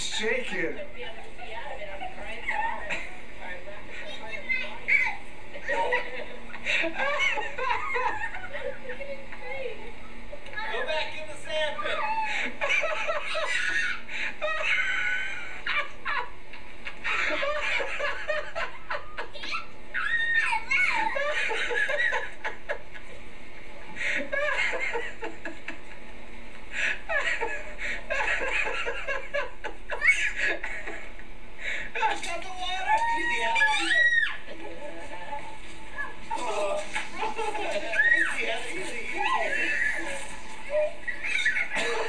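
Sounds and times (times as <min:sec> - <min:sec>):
children laughing and squealing: 0:04.1 - 0:09.7, 0:11.7 - 0:16.2, 0:17.1 - 0:22.6, 0:27.1 - 0:31.0, 0:32.6 - 0:34.6, 0:35.2 - 0:38.5, 0:39.1 - 0:42.0.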